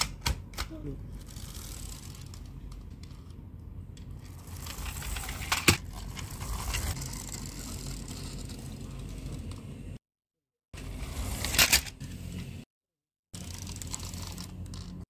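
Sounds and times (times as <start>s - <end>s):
toy car clicking and rattling: 1.1s - 3.2s, 4.1s - 9.6s, 13.4s - 15.0s.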